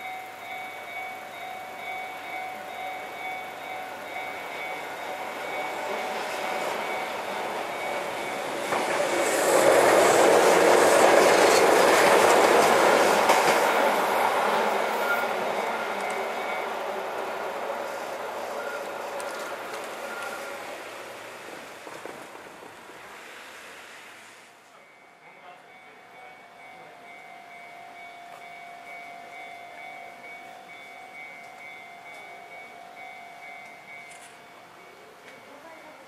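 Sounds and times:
level crossing warning bell: 0.0s - 8.8s, 13.7s - 20.7s, 24.7s - 36.0s
train passing: 0.0s - 36.0s.

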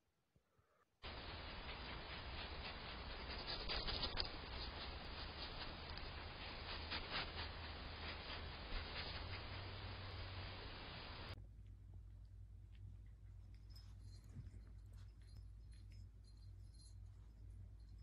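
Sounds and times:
microphone hiss and hum: 1.0s - 12.4s
animal scratching at camera: 1.1s - 10.2s.

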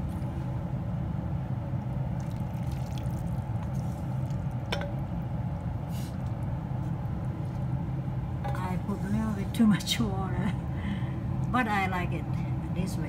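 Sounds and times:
steady low hum: 0.0s - 13.0s
liquid and food poured into bowl: 2.1s - 4.7s.

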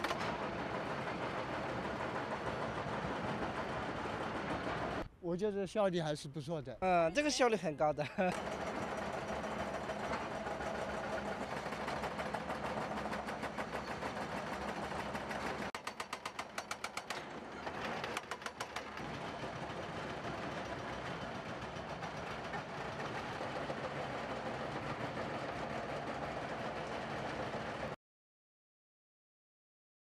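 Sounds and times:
excavator engines running: 0.0s - 5.1s, 7.0s - 28.0s
hydraulic breaker hammering concrete: 8.3s - 23.8s.

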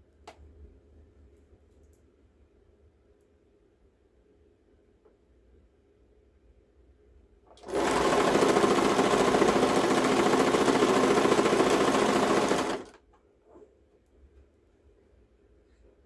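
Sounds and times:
sewing machine stitching: 7.5s - 13.0s.

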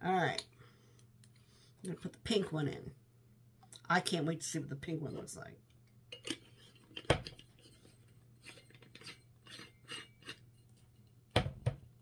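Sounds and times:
small clicks and scrapes: 6.2s - 11.2s.

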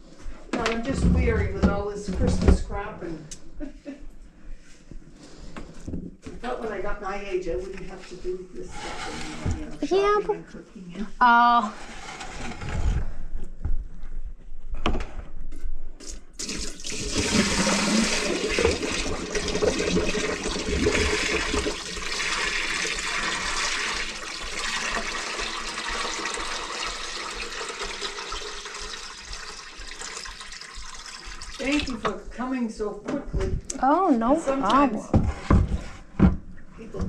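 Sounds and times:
water pouring into metal sink: 16.4s - 32.0s.

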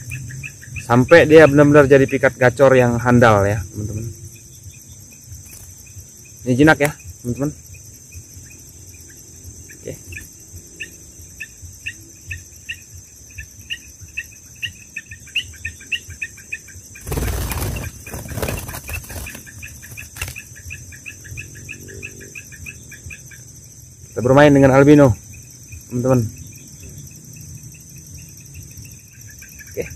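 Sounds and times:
crickets chirping: 0.0s - 29.9s
high insect drone: 0.0s - 29.9s
bird wings flapping: 5.4s - 5.8s, 17.0s - 20.5s.

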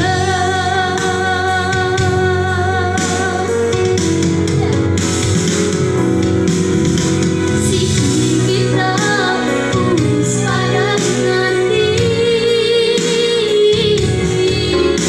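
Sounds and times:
girl singing into a microphone: 0.0s - 4.0s, 7.6s - 15.0s
instrumental accompaniment: 0.0s - 15.0s.

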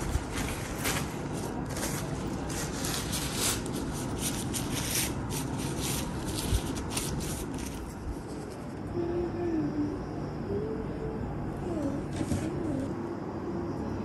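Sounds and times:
cloth napkins rustling: 0.0s - 8.8s.

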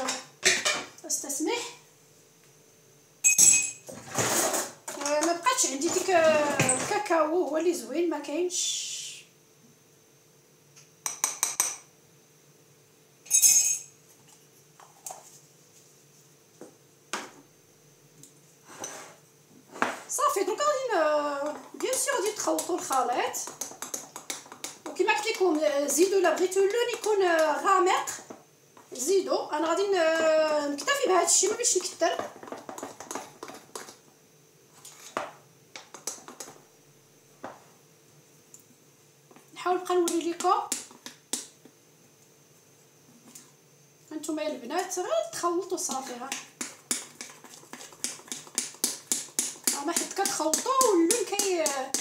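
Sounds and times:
spoons clinking on glass bowls: 3.2s - 3.8s, 13.3s - 13.9s
spoon stirring batter: 21.4s - 29.0s, 29.6s - 34.1s, 34.7s - 36.6s, 45.7s - 52.0s.

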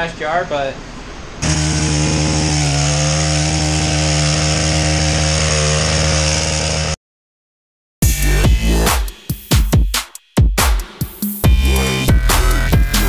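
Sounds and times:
small gas engine running: 1.4s - 7.0s.

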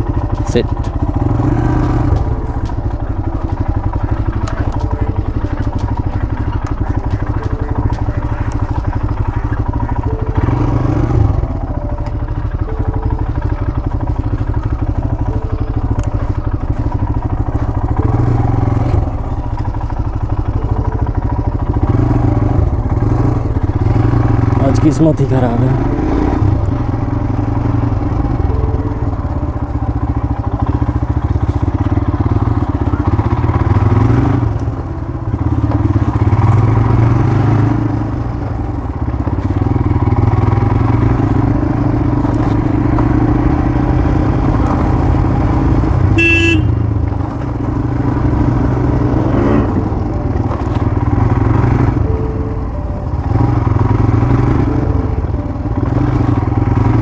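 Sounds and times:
motorcycle engine running: 0.0s - 57.0s
horn toot: 46.1s - 47.0s.

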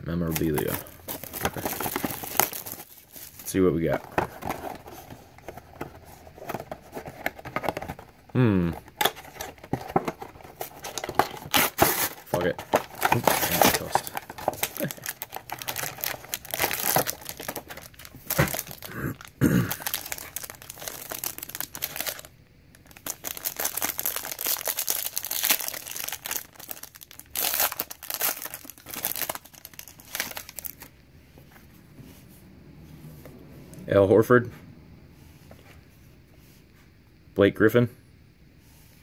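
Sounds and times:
foil wrapper crinkling and tearing: 0.3s - 4.8s, 8.9s - 30.9s.

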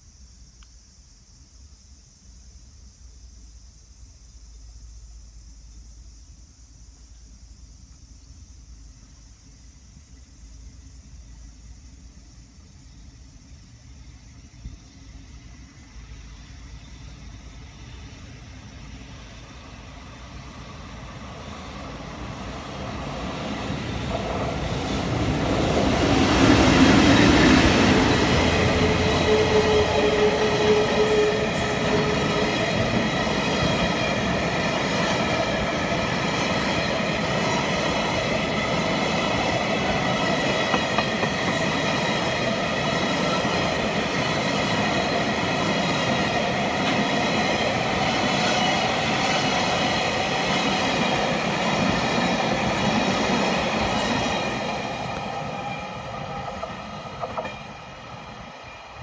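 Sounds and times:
freight train passing: 5.1s - 59.0s
high ringing from train wheels: 15.1s - 59.0s.

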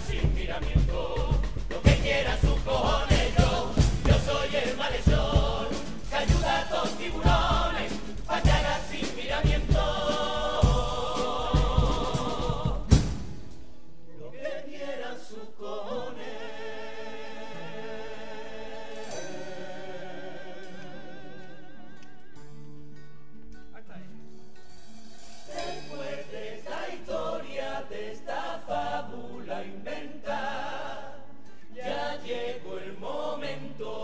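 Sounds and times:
bass drum and snare: 0.0s - 13.8s
choir singing in harmony: 0.0s - 22.4s, 25.5s - 34.0s
acoustic guitars: 0.2s - 14.2s, 16.9s - 27.2s, 28.5s - 32.8s.

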